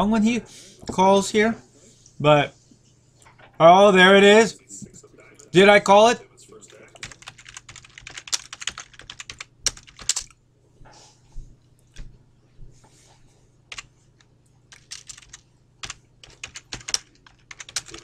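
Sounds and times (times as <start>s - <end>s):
faint low hum: 0.0s - 18.0s
rapid sharp clicking: 14.7s - 18.0s.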